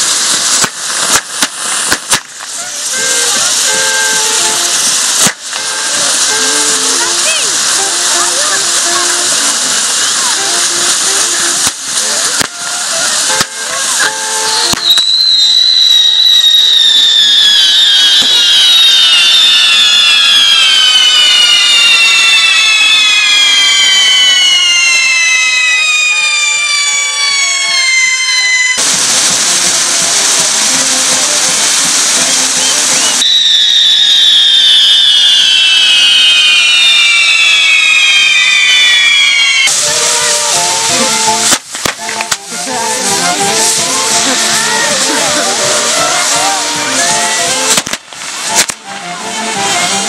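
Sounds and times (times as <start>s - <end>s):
sharp firework pops: 0.0s - 49.0s
firework wheel whistling: 0.0s - 50.0s
hiss of burning sparks: 0.0s - 50.0s.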